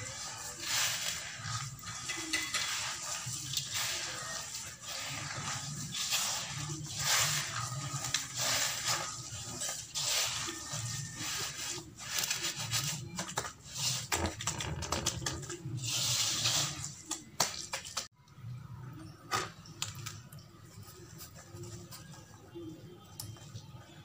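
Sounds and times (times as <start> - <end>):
hands squelching wet cement paste: 0.0 - 18.1.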